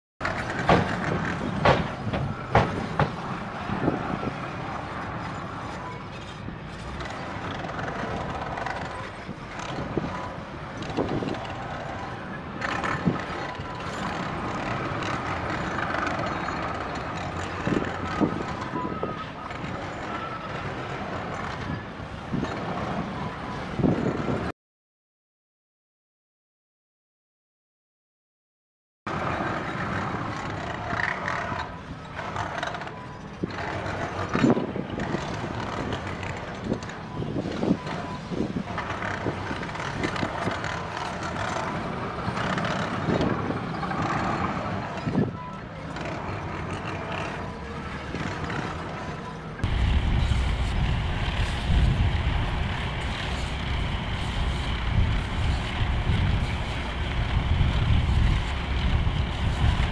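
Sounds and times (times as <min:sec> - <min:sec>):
knocks and clanks: 0:00.2 - 0:03.4
heavy equipment running: 0:00.2 - 0:24.4, 0:29.1 - 0:59.9
construction machinery diesel rumble: 0:48.9 - 0:59.9.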